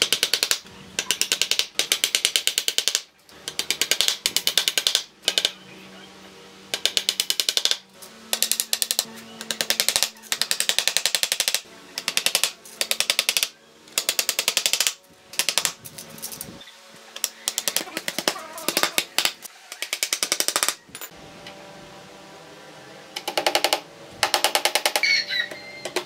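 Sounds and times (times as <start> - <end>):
hammer driving nails into wood: 0.0 - 5.5, 6.7 - 15.8, 23.2 - 25.0.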